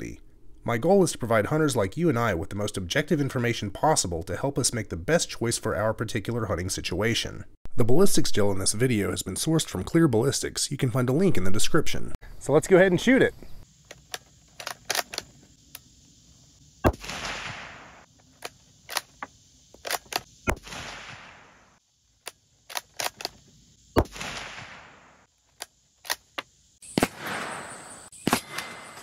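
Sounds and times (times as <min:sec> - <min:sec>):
rifle shots echoing: 0:16.8 - 0:18.0, 0:20.5 - 0:21.7, 0:24.0 - 0:25.2, 0:26.9 - 0:29.0
sharp crack with rushing noise: 0:16.8 - 0:18.1, 0:19.8 - 0:21.8, 0:24.0 - 0:25.3, 0:26.9 - 0:29.0
short clicks: 0:22.2 - 0:23.4.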